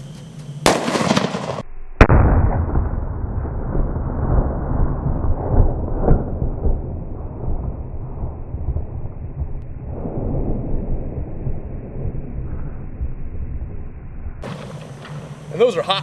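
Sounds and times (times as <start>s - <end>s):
revolver gunshot crack: 0.6s - 8.2s
low rumble: 0.6s - 15.6s.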